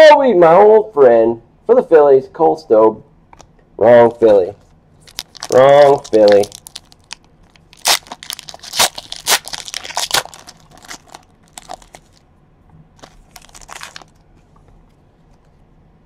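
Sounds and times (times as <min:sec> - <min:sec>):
foil wrapper tearing and crinkling: 0:05.0 - 0:12.2, 0:13.0 - 0:14.2.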